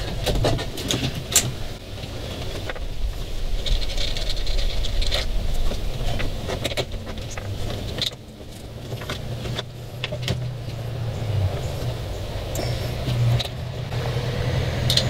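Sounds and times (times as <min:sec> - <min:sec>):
cables clicking and rattling: 0:00.0 - 0:14.0.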